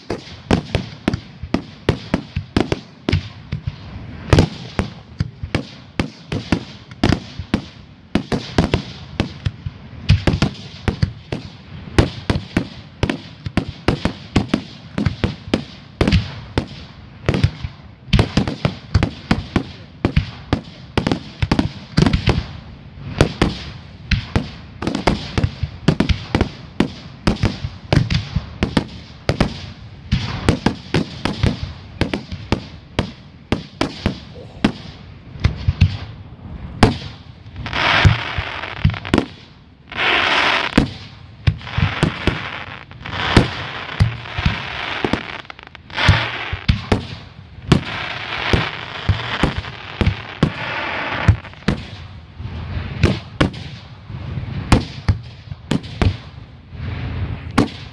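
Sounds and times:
firework shells bursting: 0:23.2 - 0:52.0.

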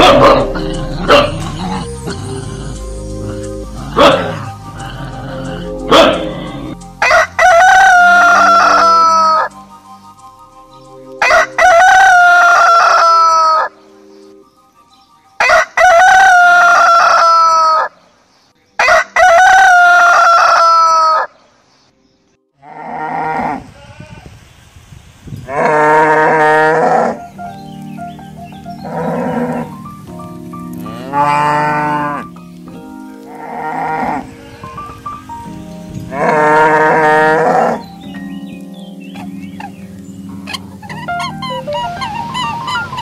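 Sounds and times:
rooster crowing: 0:07.0 - 0:09.5, 0:11.2 - 0:13.7, 0:15.4 - 0:17.9, 0:18.8 - 0:21.3
cattle mooing: 0:22.6 - 0:23.7, 0:25.5 - 0:27.2, 0:30.8 - 0:32.3, 0:33.3 - 0:34.3, 0:36.1 - 0:37.8.

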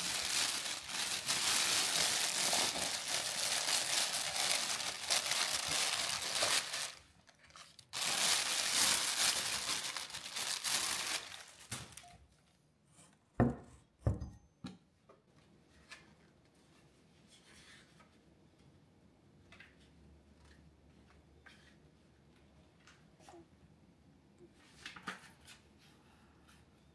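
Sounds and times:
plastic wrapping crinkling: 0:00.0 - 0:12.5
objects knocking on wooden table: 0:13.4 - 0:14.4.

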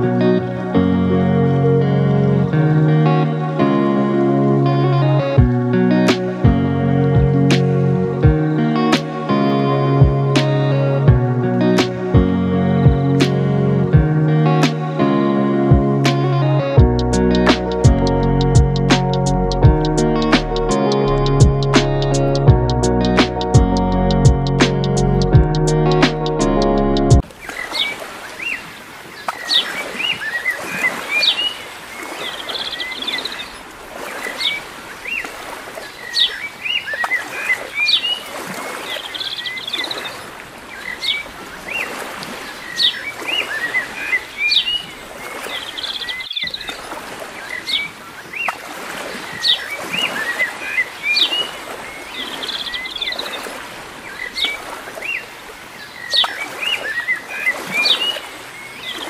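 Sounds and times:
small birds chirping: 0:27.4 - 0:59.0.

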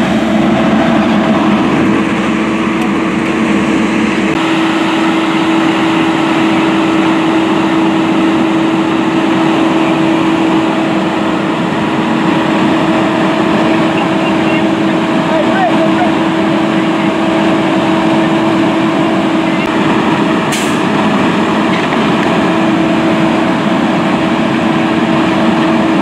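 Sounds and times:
constant mechanical hum: 0:00.0 - 0:26.0
fire engine running: 0:00.0 - 0:26.0.

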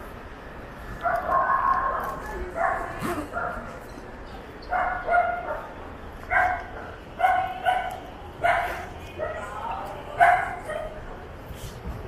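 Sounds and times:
dog barking: 0:02.2 - 0:03.7, 0:04.7 - 0:05.7, 0:06.3 - 0:09.5, 0:10.2 - 0:11.0.

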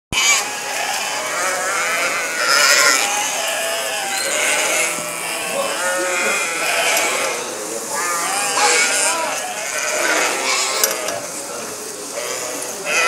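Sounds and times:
flock of sheep bleating: 0:00.1 - 0:13.0.

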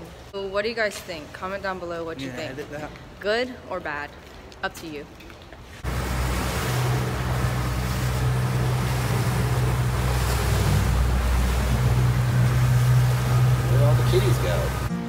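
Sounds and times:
water rushing along hull: 0:05.8 - 0:14.9
motorboat engine humming: 0:05.8 - 0:15.0.

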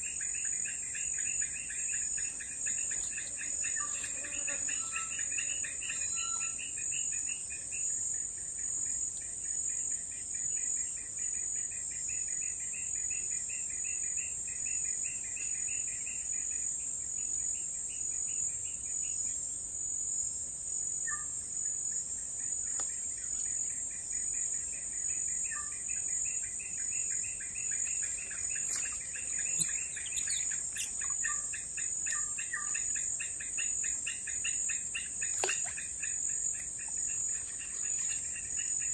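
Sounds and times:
pulsing insect trill: 0:00.0 - 0:08.3, 0:23.6 - 0:38.9
insects droning: 0:00.0 - 0:38.9
bird chirps: 0:00.4 - 0:07.1, 0:27.0 - 0:38.9.

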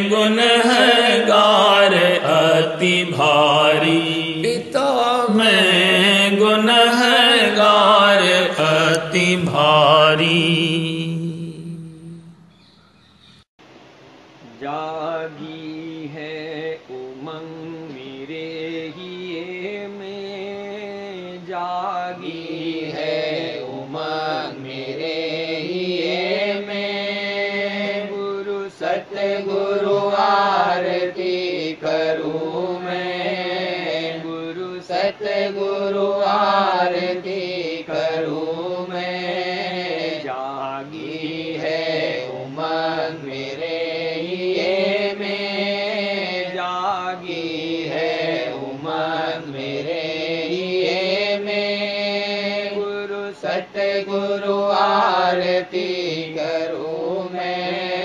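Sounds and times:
steady low drone: 0:08.4 - 0:12.7.

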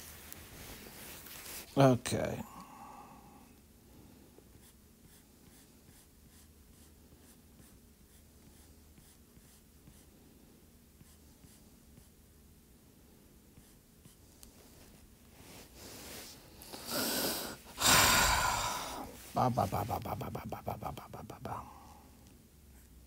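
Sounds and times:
low room hum: 0:00.0 - 0:23.0.

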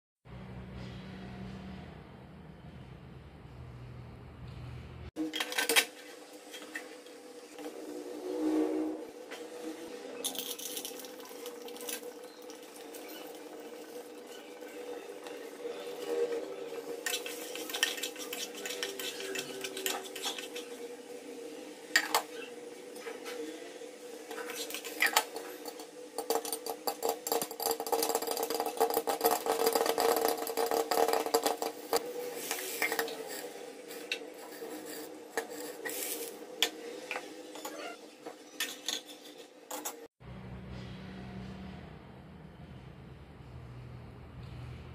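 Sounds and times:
popcorn popping in a pan: 0:24.8 - 0:33.4.

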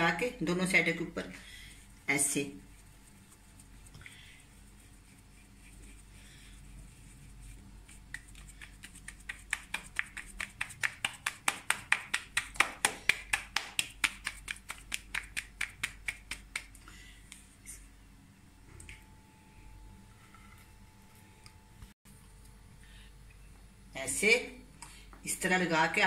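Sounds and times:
dough slapped between palms: 0:07.9 - 0:17.4.

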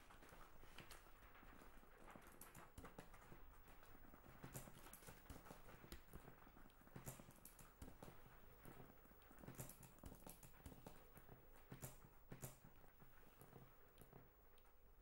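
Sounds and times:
faint irregular clicks and knocks: 0:00.0 - 0:15.0.

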